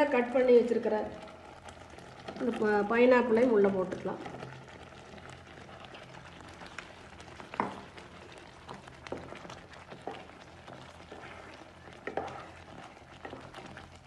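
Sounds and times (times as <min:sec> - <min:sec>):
spatula scraping a pan: 0:04.2 - 0:14.0.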